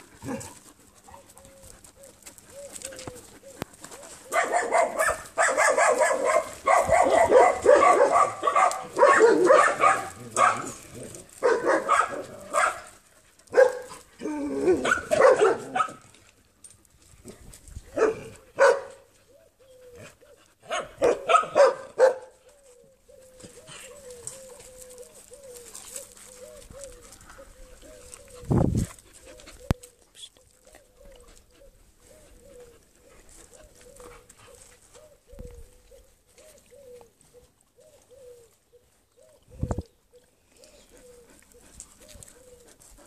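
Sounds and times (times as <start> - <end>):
dogs barking: 4.3 - 12.9, 13.5 - 14.0, 14.6 - 16.0, 18.0 - 19.1, 20.6 - 22.4.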